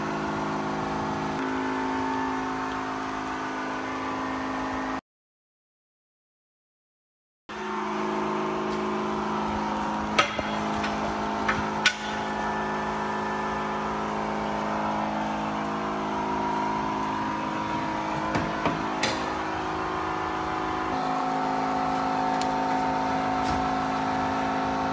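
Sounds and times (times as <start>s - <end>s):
pressure washer spraying: 18.3s - 24.9s.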